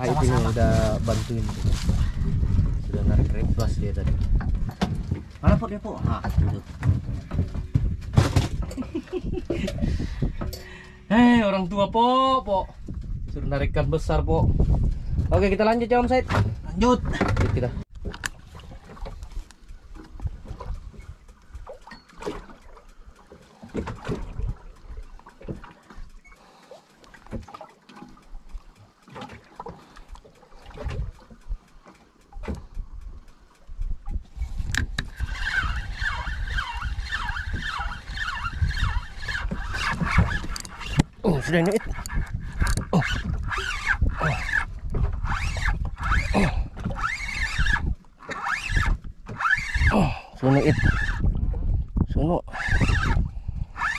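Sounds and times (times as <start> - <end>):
small waves slapping boat hull: 0.0 - 53.9
fishing reel squeaking: 20.9 - 22.9, 34.3 - 51.3, 52.4 - 53.9.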